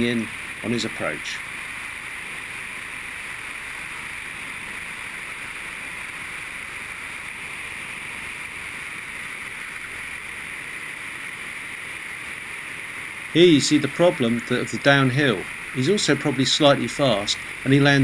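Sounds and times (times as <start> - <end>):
airplane engine: 0.0 - 18.0.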